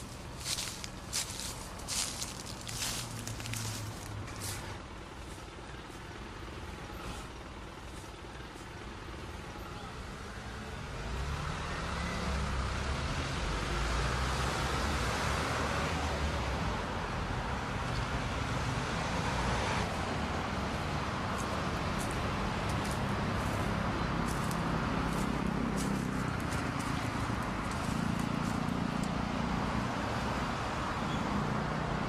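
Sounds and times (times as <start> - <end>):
footsteps on garden path: 0.0 - 6.2, 19.8 - 29.2
road traffic passing: 0.0 - 32.0.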